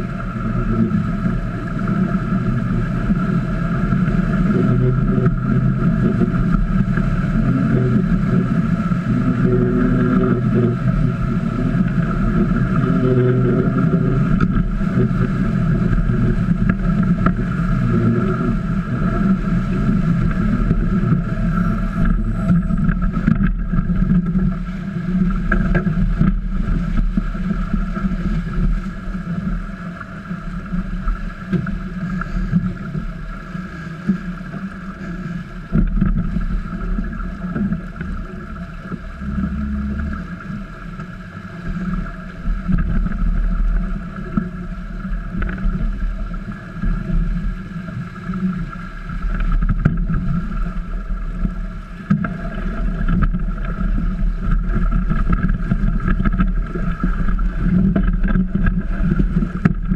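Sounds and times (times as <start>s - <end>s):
faint steady hum: 0.0s - 59.9s
water rushing along hulls: 0.0s - 59.9s.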